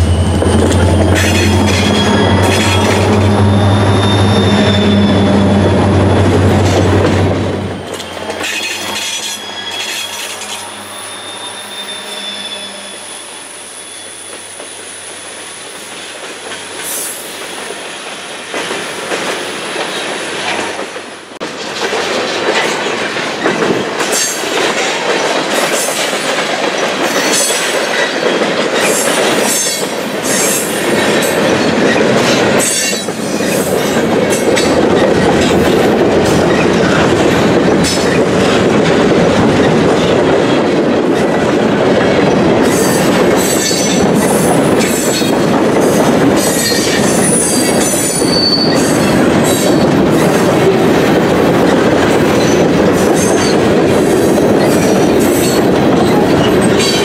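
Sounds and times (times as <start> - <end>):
train wheels rumbling on rail: 0.0 - 57.0
wheels clicking over rail joints: 18.5 - 57.0.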